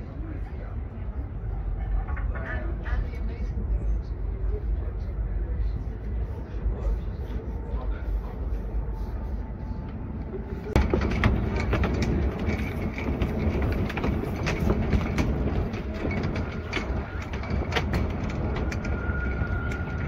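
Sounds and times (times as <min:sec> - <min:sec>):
low city rumble: 0:00.0 - 0:20.0
footsteps on footbridge: 0:09.9 - 0:20.0.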